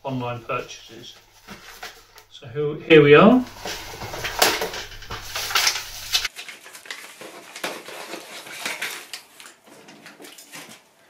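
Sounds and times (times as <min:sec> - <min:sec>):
cardboard rustling and scraping: 0:01.1 - 0:02.2, 0:03.3 - 0:10.9.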